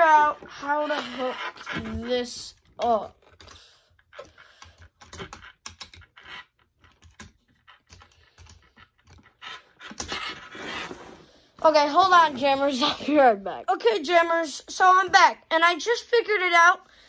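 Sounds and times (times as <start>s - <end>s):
plastic parts clicking: 2.8s - 10.2s.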